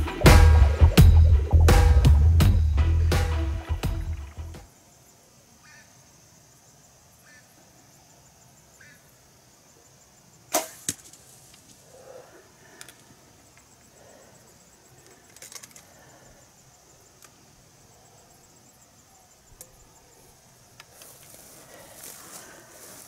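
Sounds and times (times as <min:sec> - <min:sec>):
insects chirping: 0:00.0 - 0:23.0
bow shot snap: 0:10.5 - 0:11.2
sharp crack: 0:10.5 - 0:11.7
soft rustling: 0:20.9 - 0:23.0.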